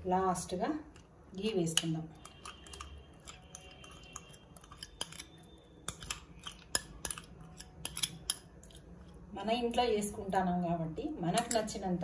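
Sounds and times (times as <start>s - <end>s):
metal spoon tapping metal pot: 1.6s - 8.6s, 11.3s - 11.8s.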